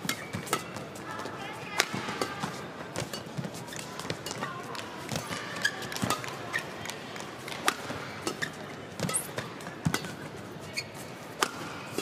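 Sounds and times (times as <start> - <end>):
racket striking shuttlecock: 0.0 - 0.8, 1.8 - 10.2, 11.3 - 12.0
shoe squeaks: 5.6 - 6.8, 8.4 - 9.4, 10.0 - 11.3.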